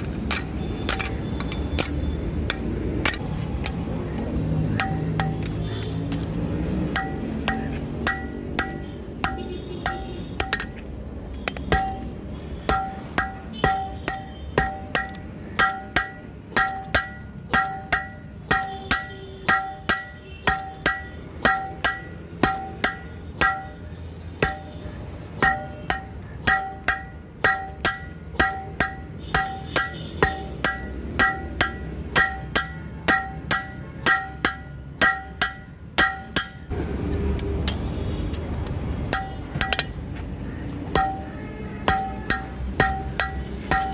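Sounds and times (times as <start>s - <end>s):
hammer striking metal on anvil: 4.8s - 5.5s, 6.9s - 10.9s, 11.5s - 36.8s, 39.1s - 40.0s, 40.9s - 43.9s.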